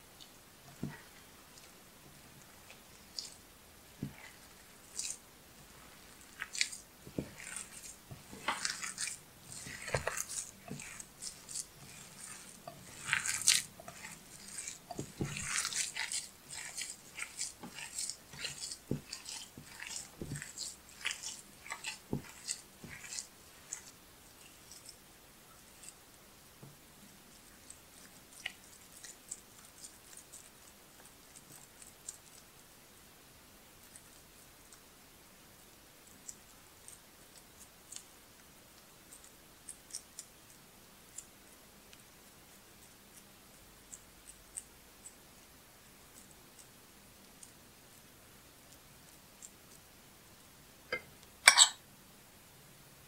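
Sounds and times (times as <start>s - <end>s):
hands squishing dough: 0.0s - 51.8s.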